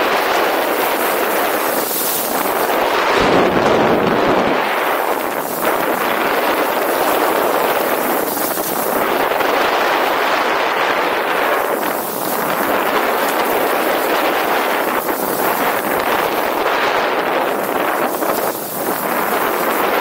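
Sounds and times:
wind rushing across microphone: 0.0 - 20.0
skis hissing over snow: 0.4 - 3.2.

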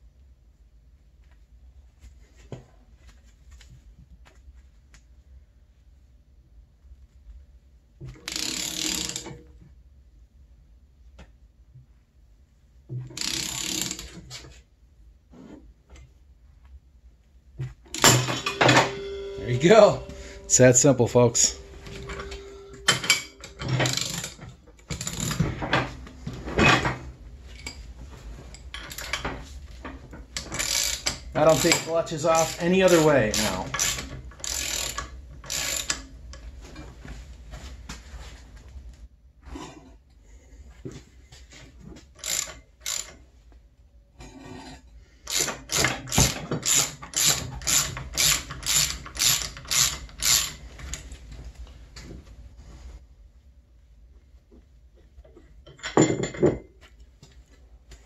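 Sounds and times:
ratchet clicking: 8.3 - 9.2, 13.2 - 14.1, 30.4 - 36.0, 42.2 - 43.1, 45.3 - 51.0.

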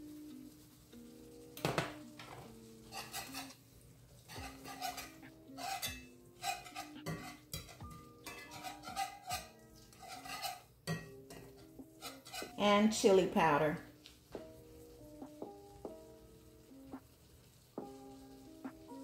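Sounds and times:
quiet background music: 0.0 - 19.0
utensil scraping skillet: 2.0 - 13.8.

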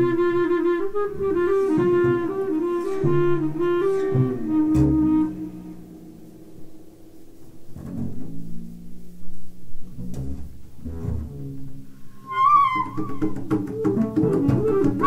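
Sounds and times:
woodwind high wavering line: 0.0 - 5.9, 12.1 - 15.0.

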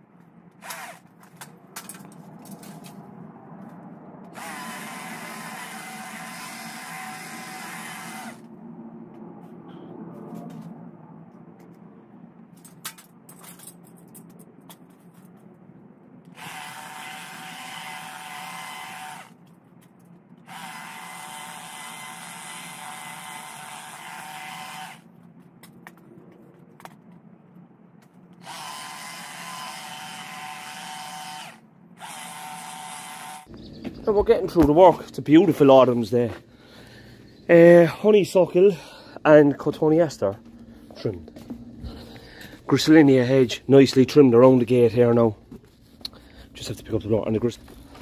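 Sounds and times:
hedge trimmer cutting: 0.6 - 1.4, 4.3 - 8.5, 16.3 - 19.4, 20.4 - 25.1, 28.4 - 33.5.

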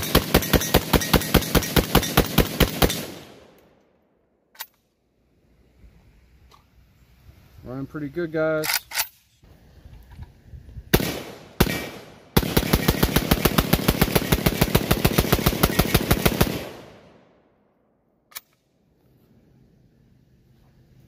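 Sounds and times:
pistol shots: 10.9 - 17.1.

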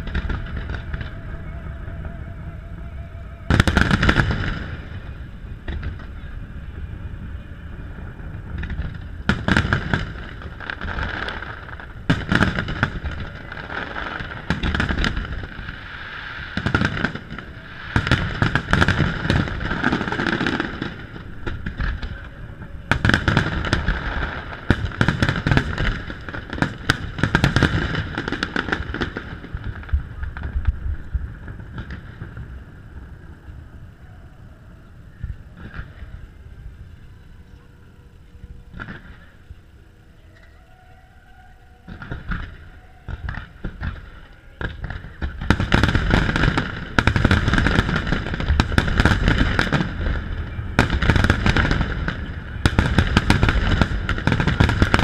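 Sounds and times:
fireworks booming and crackling: 0.0 - 2.2, 3.2 - 37.4, 38.5 - 39.8, 41.8 - 55.0.

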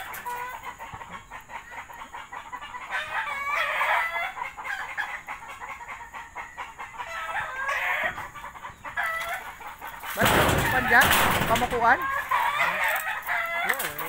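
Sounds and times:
rooster crowing: 2.9 - 4.9, 11.9 - 14.0.

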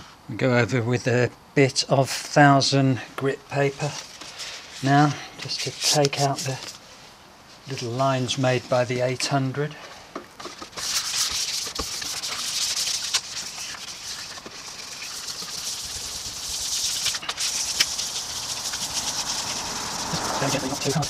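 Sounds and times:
sandpaper rubbing on metal: 3.8 - 6.8, 10.6 - 21.0.

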